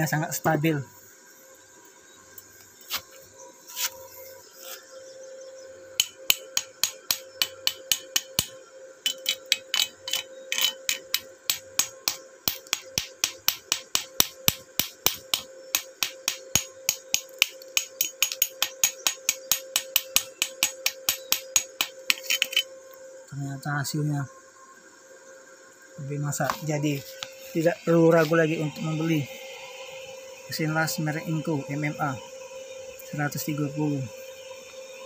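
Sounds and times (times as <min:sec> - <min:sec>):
wire brush on steel: 0:03.7 - 0:04.0, 0:09.1 - 0:14.1, 0:17.8 - 0:22.7
hammer striking metal: 0:06.0 - 0:08.5, 0:09.1 - 0:22.6.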